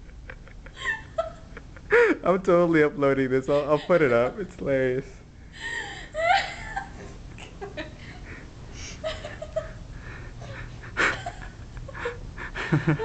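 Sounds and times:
person laughing: 0:00.0 - 0:02.2, 0:05.6 - 0:08.0, 0:09.0 - 0:09.8, 0:10.4 - 0:13.0.

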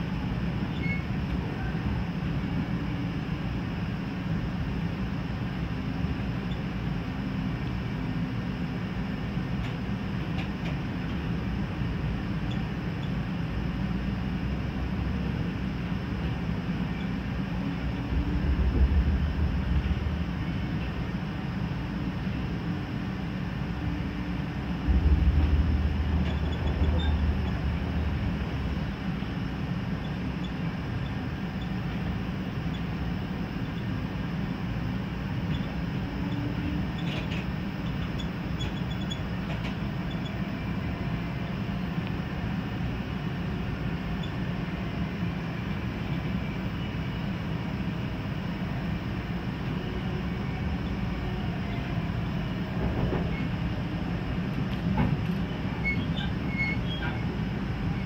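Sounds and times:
freight train passing: 0:00.0 - 0:58.0
train rumbling on rails: 0:00.0 - 0:58.0
faint high squeals: 0:00.7 - 0:01.8, 0:26.0 - 0:27.8, 0:55.7 - 0:58.0.

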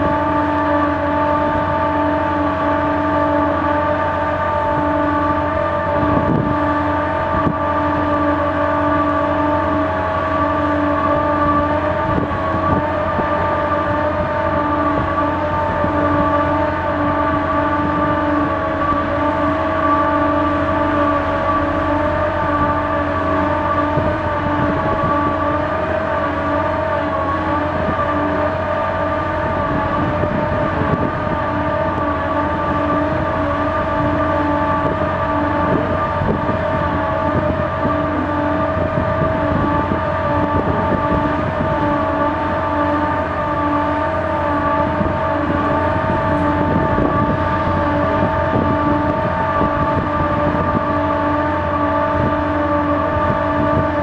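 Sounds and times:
diesel engine running: 0:00.0 - 0:54.0
steady whining tones: 0:00.0 - 0:54.0
low tone cutting in and out: 0:10.9 - 0:52.5.

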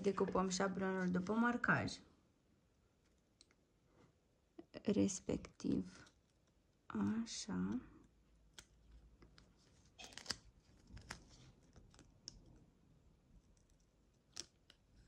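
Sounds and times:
paper crinkling: 0:09.5 - 0:12.3.

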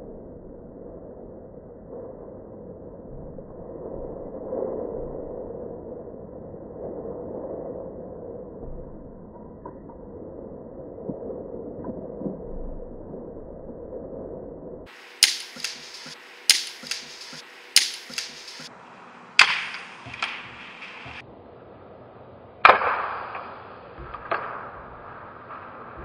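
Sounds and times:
dull drawn-out cracks: 0:14.9 - 0:18.8, 0:19.4 - 0:21.2
sharp cracks: 0:14.9 - 0:21.2, 0:22.6 - 0:26.0
faint knocks: 0:19.8 - 0:21.2.

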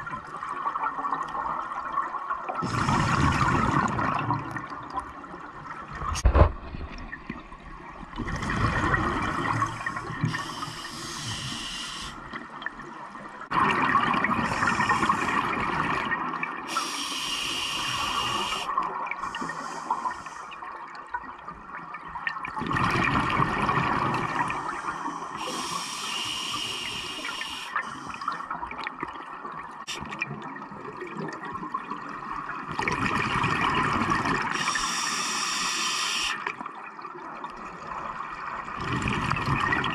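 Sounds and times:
diver exhaling bubbles underwater: 0:02.6 - 0:04.7, 0:08.2 - 0:10.4, 0:22.5 - 0:24.8, 0:38.8 - 0:39.9
regulator hiss: 0:10.3 - 0:12.2, 0:16.7 - 0:20.5, 0:24.6 - 0:28.4, 0:34.6 - 0:36.4.

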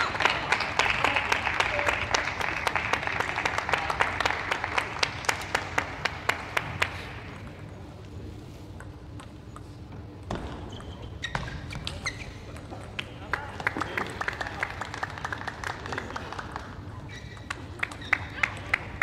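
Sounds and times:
audience applauding: 0:00.0 - 0:07.1, 0:13.2 - 0:16.9.

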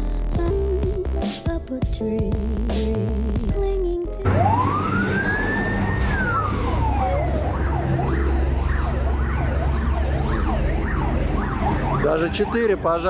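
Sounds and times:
background music: 0:00.0 - 0:13.0
fire engine siren: 0:04.2 - 0:13.0
low traffic rumble: 0:04.3 - 0:13.0.

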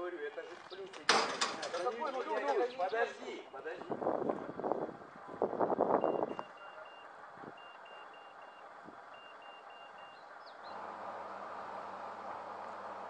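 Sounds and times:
electronic warning beeps: 0:06.0 - 0:10.3.

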